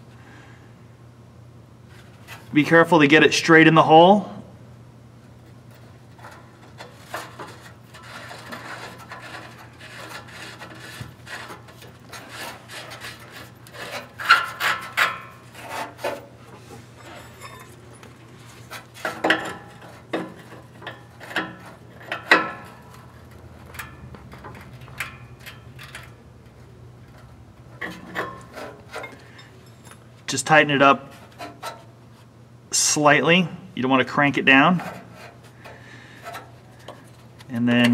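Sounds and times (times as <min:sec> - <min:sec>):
steady low hum: 0:00.0 - 0:37.9
metal scrapes and clicks: 0:05.7 - 0:16.3, 0:17.0 - 0:30.0, 0:31.1 - 0:31.9, 0:34.6 - 0:37.9.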